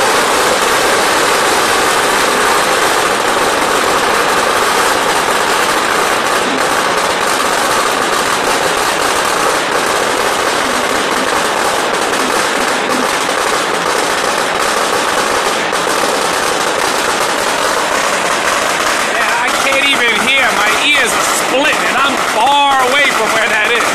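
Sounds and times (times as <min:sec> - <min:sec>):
firecrackers crackling: 0:00.0 - 0:23.9.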